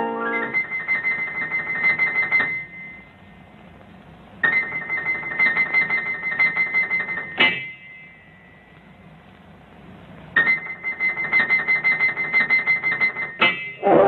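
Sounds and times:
piano run of notes: 0:00.0 - 0:01.3
loud piano chord ringing: 0:00.0 - 0:03.1.

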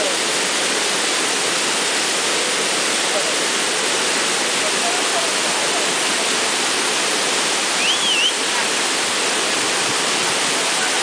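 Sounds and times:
waterfall rushing: 0:00.0 - 0:11.0
short high whistle: 0:07.8 - 0:08.4.

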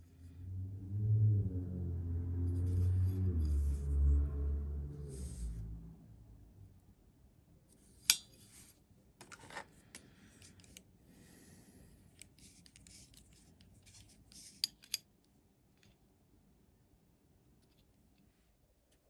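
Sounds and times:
metal rubbing and sliding: 0:02.4 - 0:05.8.

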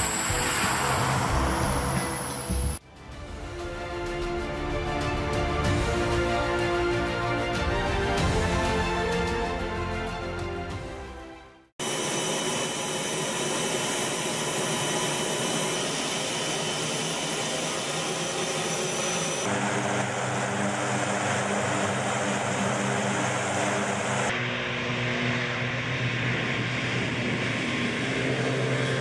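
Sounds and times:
turboprop engines running: 0:00.0 - 0:02.8, 0:11.8 - 0:29.0.

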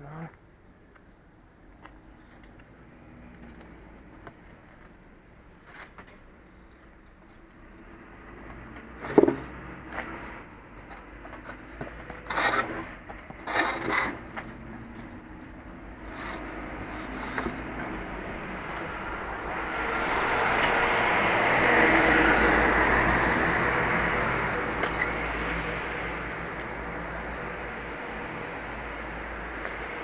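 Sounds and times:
pole base scraping on concrete: 0:11.5 - 0:15.2, 0:16.0 - 0:18.0.

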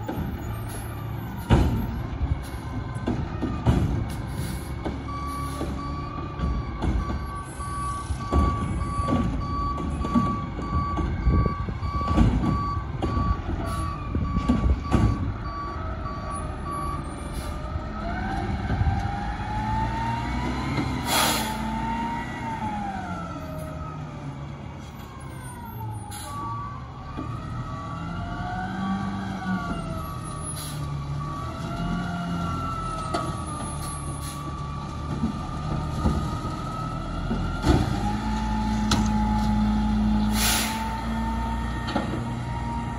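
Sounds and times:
diesel engine revving: 0:00.0 - 0:42.9
truck backup alarm beeping: 0:00.1 - 0:18.7, 0:25.0 - 0:28.2, 0:28.8 - 0:42.9.

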